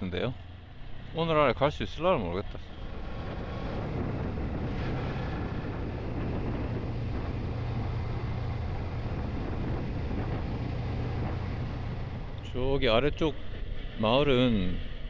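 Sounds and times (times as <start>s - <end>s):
motorcycle engine running: 2.6s - 12.5s
wind on microphone: 2.7s - 12.4s.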